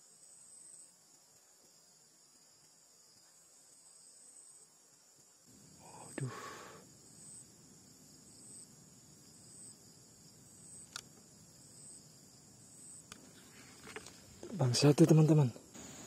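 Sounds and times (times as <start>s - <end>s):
insect chirping: 0.0s - 16.0s
faint clicks: 10.8s - 11.3s.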